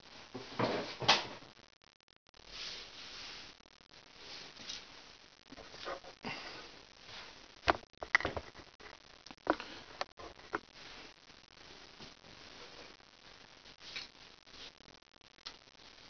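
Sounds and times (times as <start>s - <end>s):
handling knocks and clicks: 7.7s - 8.6s.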